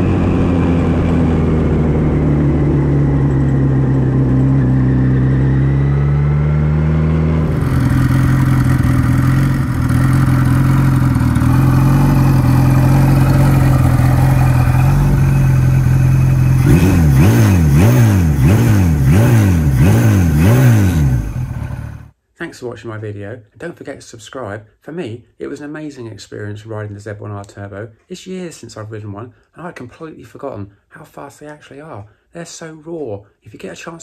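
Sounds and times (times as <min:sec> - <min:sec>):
motorcycle engine idling and revving: 0:00.0 - 0:22.2.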